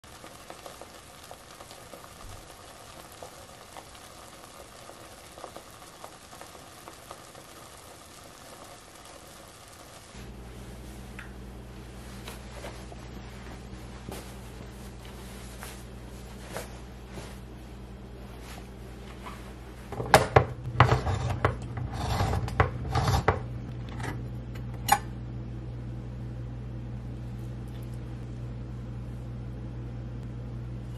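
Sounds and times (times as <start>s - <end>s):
toffee bubbling and sizzling: 0.0s - 17.0s
low hum: 9.6s - 30.9s.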